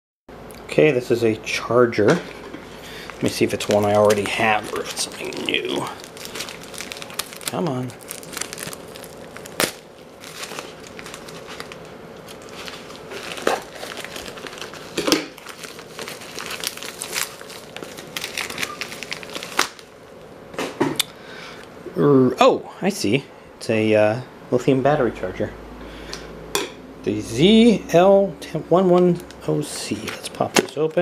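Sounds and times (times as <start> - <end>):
packaging crinkling: 2.6 - 20.3, 29.2 - 31.0
scissors cutting plastic mailer: 3.2 - 7.8.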